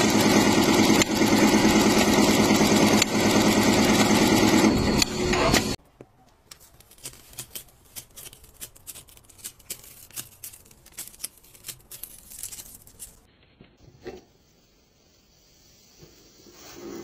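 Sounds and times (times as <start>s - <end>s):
sticker sheet crinkling: 6.4s - 13.3s.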